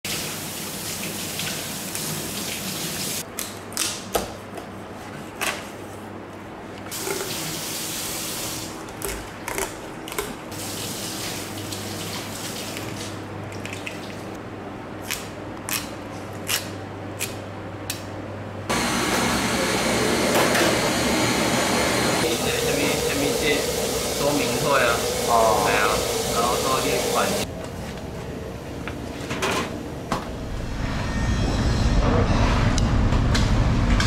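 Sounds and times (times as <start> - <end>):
steady rushing hiss: 22.2 - 27.4.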